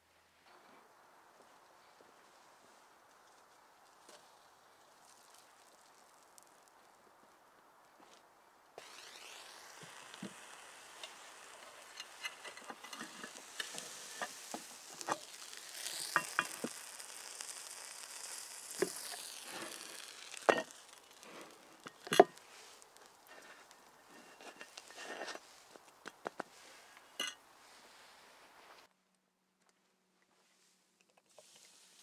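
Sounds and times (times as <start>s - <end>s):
sandwich sizzling and crackling: 3.8s - 7.0s, 8.8s - 28.4s, 31.2s - 32.0s.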